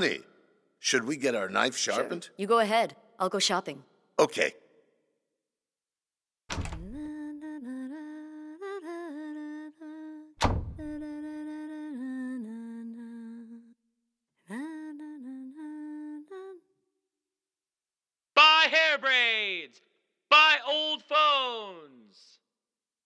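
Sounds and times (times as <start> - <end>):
woman humming a tune: 14.5 - 16.7.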